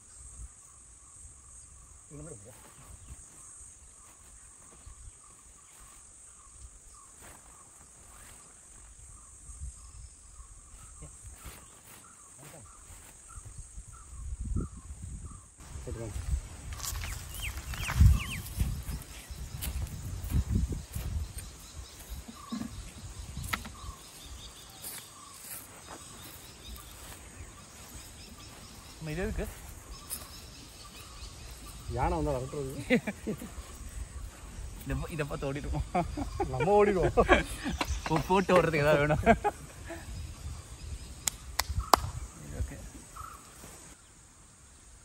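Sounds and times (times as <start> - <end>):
insect chorus: 0.0 - 45.0
bird calling: 16.8 - 44.2.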